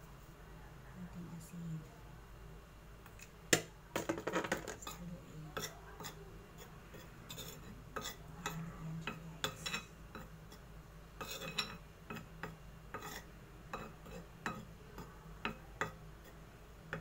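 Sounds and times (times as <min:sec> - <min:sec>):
spoon stirring flour in bowl: 0:04.8 - 0:17.0.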